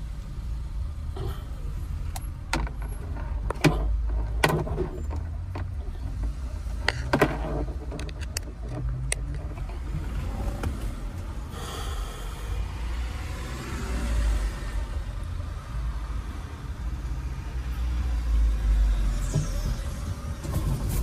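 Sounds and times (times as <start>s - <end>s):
vehicle engine and road rumble: 0.0s - 21.0s
clicks and rattles: 2.1s - 9.9s.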